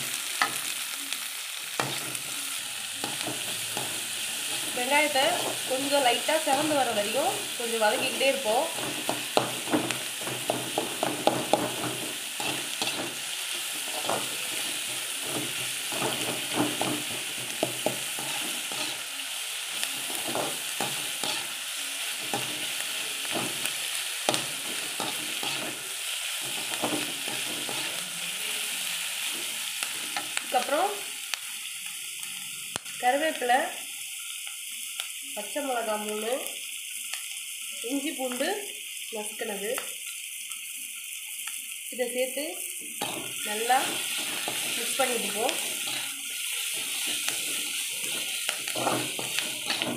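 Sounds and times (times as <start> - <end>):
onions sizzling in hot oil: 0.0 - 49.9
metal ladle scraping pan: 7.8 - 19.1, 19.9 - 21.6, 24.3 - 25.8, 26.4 - 28.0, 43.0 - 49.9.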